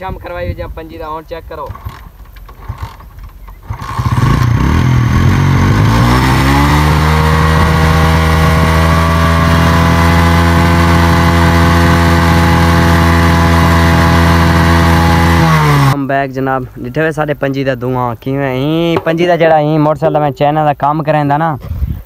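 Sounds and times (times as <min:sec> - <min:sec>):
motorcycle engine starting and idling: 0:01.5 - 0:16.0.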